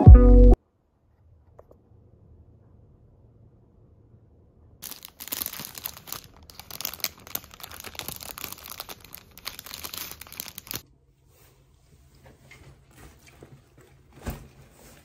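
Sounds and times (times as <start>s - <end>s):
plastic bag crinkling: 4.8s - 10.8s.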